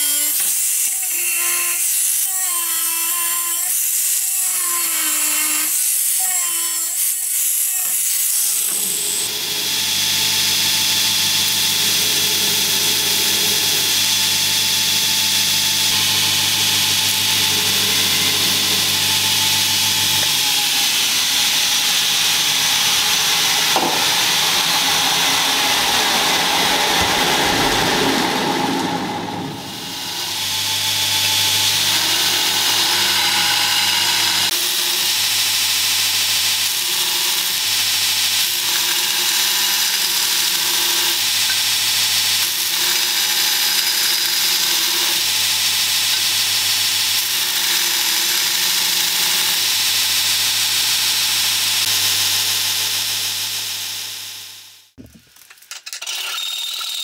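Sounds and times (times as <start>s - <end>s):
belt grinder grinding steel: 0.0s - 53.7s, 55.4s - 57.0s
motor hum: 8.6s - 35.1s.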